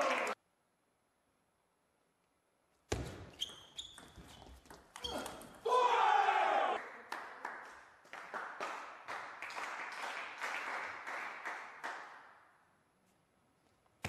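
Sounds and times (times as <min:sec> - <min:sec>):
sparse applause: 0:00.0 - 0:00.4.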